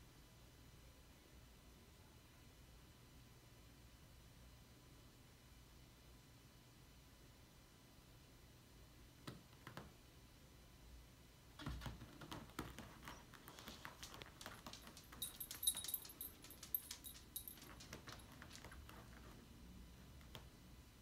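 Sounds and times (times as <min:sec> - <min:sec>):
pets scuffling on wooden floor: 0:11.9 - 0:19.4
dog collar tags jingling: 0:13.1 - 0:19.3.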